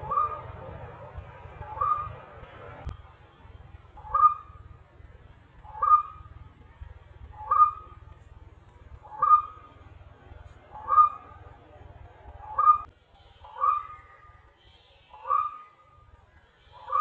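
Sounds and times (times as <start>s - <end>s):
waterhen calling: 0.0s - 0.7s, 1.6s - 2.3s, 4.0s - 4.6s, 5.6s - 6.3s, 7.4s - 8.0s, 9.0s - 9.8s, 10.7s - 11.4s, 12.4s - 15.8s.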